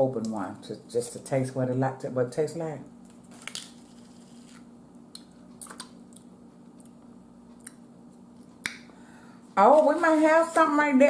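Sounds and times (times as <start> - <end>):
lip smacks and mouth clicks: 5.1 - 7.0, 7.6 - 8.9.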